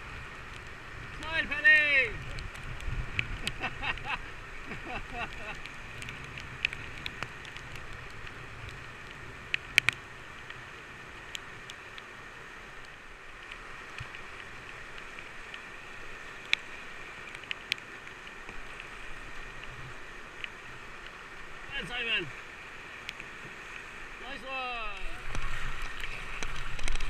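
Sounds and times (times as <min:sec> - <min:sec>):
river rapids rushing: 0:10.0 - 0:27.0.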